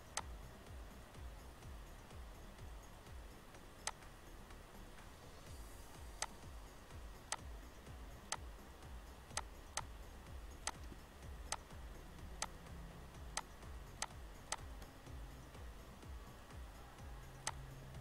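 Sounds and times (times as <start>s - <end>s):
faint low hum: 0.0s - 18.0s
computer mouse clicks: 3.8s - 4.1s, 6.2s - 6.4s, 8.3s - 8.5s, 9.3s - 9.9s, 10.6s - 11.7s, 12.4s - 12.6s, 13.3s - 14.9s, 17.4s - 17.7s.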